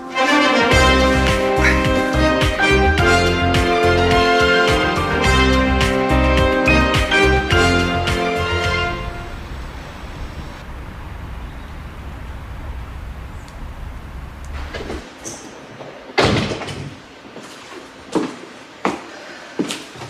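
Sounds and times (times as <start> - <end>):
low outdoor rumble: 7.5 - 15.1
door shutting with a bang: 16.2 - 17.0.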